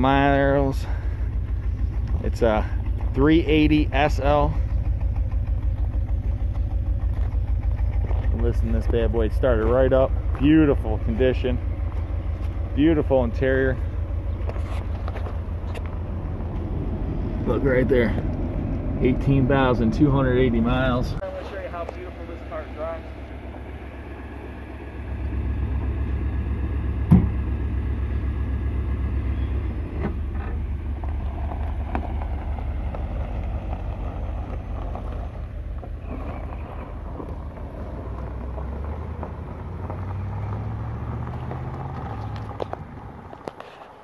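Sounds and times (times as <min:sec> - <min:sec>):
car engine running: 0:00.0 - 0:44.0
car accelerating away: 0:00.2 - 0:43.6
sharp thump: 0:27.0 - 0:27.4.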